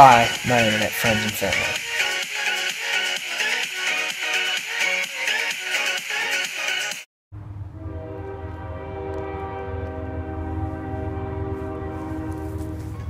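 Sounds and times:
sustained chord: 0:07.4 - 0:13.0.

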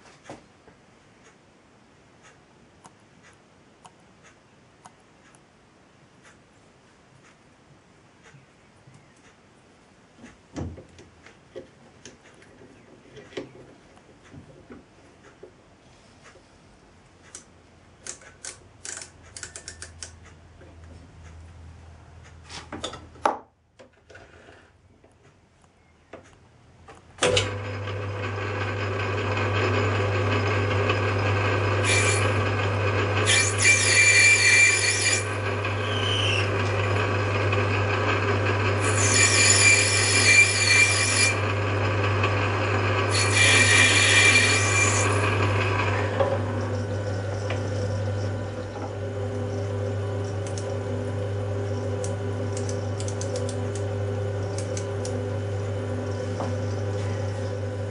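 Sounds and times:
lathe motor hum: 0:27.3 - 0:57.9
lathe tool cutting metal: 0:27.5 - 0:57.9.

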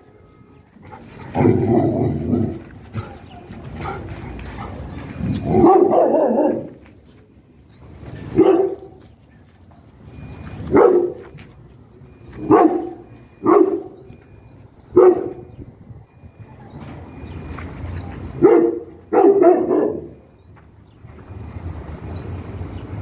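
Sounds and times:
dog barking: 0:05.6 - 0:06.8, 0:08.3 - 0:09.0, 0:10.7 - 0:11.3, 0:12.4 - 0:14.0, 0:14.9 - 0:15.5, 0:18.4 - 0:20.2.

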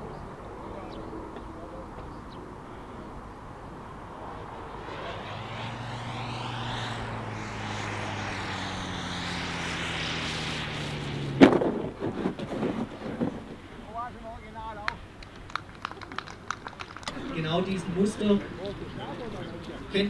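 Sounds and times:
rush of air with low hum: 0:02.6 - 0:13.0.

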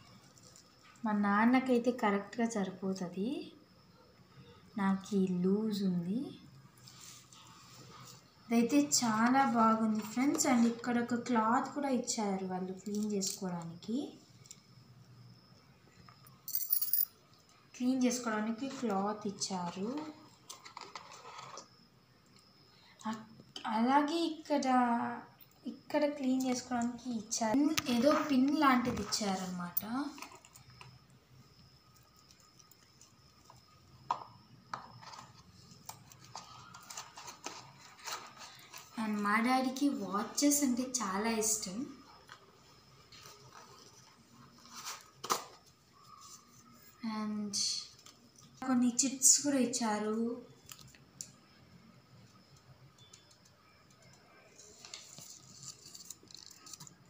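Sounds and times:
paper leaflet rustling and crinkling: 0:35.0 - 0:39.1, 0:54.6 - 0:57.0
small ticks: 0:52.2 - 0:55.0.

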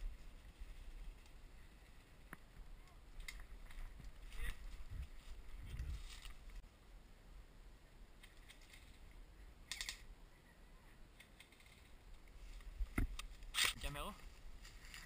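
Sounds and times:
twigs and brush rustling: 0:00.0 - 0:06.6, 0:08.1 - 0:10.1, 0:11.1 - 0:15.0
twigs crackling: 0:00.0 - 0:06.6, 0:11.1 - 0:15.0.

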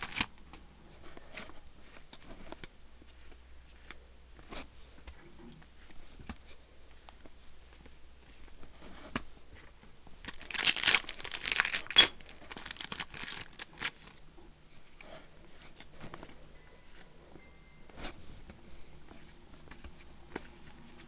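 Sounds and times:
foil wrapper crinkling: 0:00.0 - 0:00.3, 0:10.2 - 0:14.2
trading cards rustling: 0:00.0 - 0:05.1, 0:05.8 - 0:14.2.

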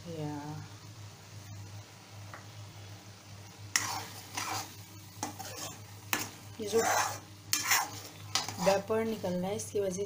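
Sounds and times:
spatula scraping metal pan: 0:03.7 - 0:08.9.

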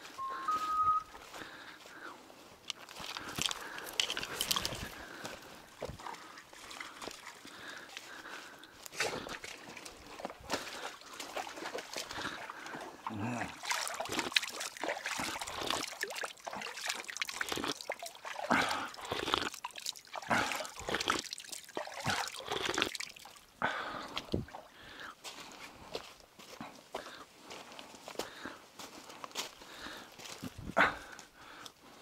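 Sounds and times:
footsteps splashing over stones: 0:00.1 - 0:31.3
water trickling over rocks: 0:02.6 - 0:24.9.

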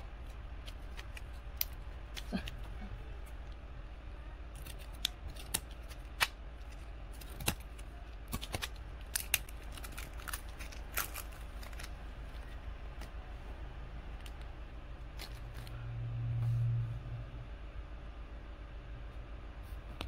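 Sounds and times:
low steady hum: 0:00.0 - 0:20.0
scissors snipping plastic: 0:00.2 - 0:02.8, 0:04.5 - 0:12.0.

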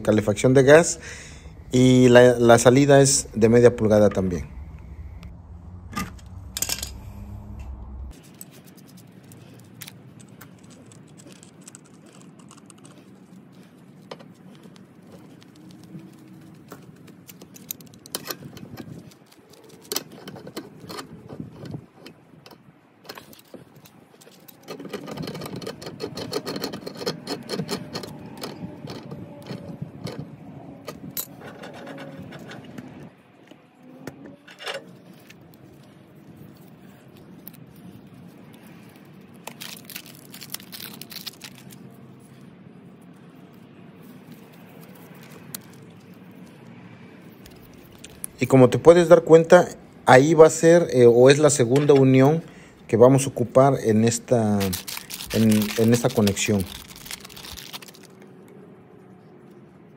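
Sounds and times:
metal clicks and clinks: 0:06.0 - 0:07.0
wrench scraping against pipe: 0:24.2 - 0:32.7.

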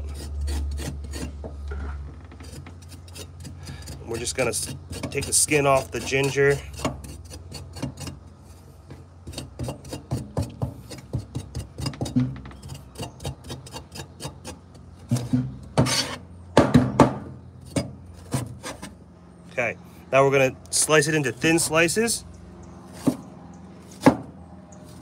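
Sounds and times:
cleaver scraping ginger skin: 0:00.0 - 0:01.4, 0:02.4 - 0:08.6.

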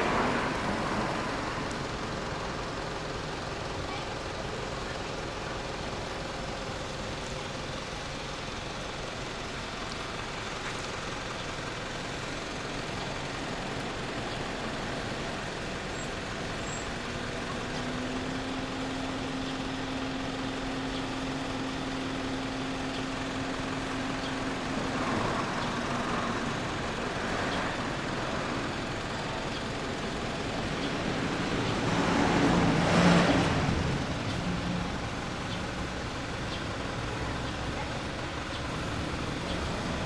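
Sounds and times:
road traffic noise: 0:00.0 - 0:40.0
vehicle low hum: 0:09.5 - 0:40.0.

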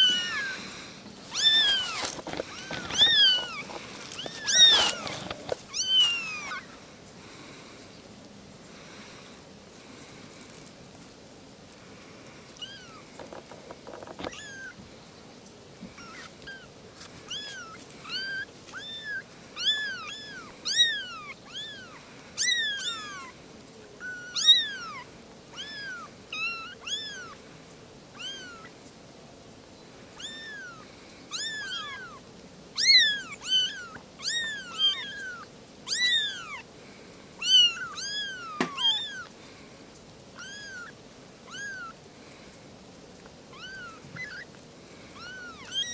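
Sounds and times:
kittens mewing: 0:00.0 - 0:06.8, 0:17.3 - 0:23.3, 0:24.0 - 0:27.4, 0:32.8 - 0:36.7, 0:37.4 - 0:39.3, 0:40.4 - 0:42.0, 0:43.5 - 0:45.9.

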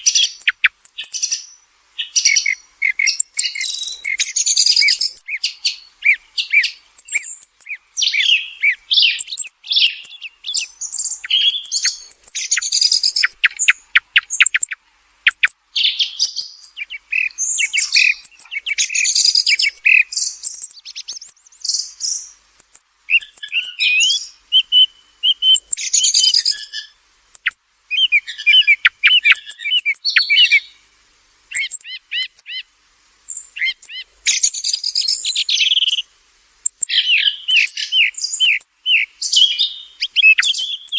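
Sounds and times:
song thrush singing: 0:00.0 - 0:30.9, 0:31.5 - 0:32.7, 0:33.3 - 0:40.9.

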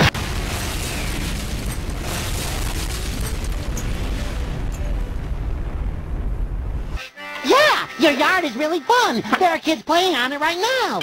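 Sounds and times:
explosion blast with rumble: 0:00.0 - 0:07.0.

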